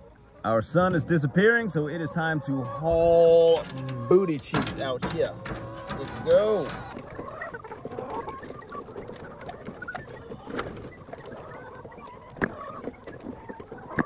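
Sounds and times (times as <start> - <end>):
hens clucking: 0.0 - 14.0
eggs clicking into plastic trays: 3.5 - 7.0.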